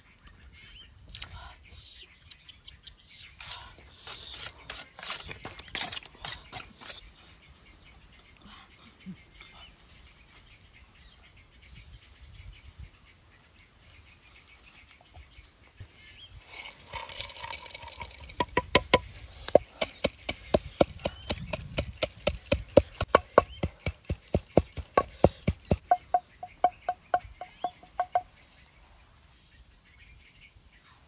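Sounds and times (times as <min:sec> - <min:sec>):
peanuts poured into mortar: 0:16.6 - 0:18.4
wooden pestle pounding: 0:18.2 - 0:28.3.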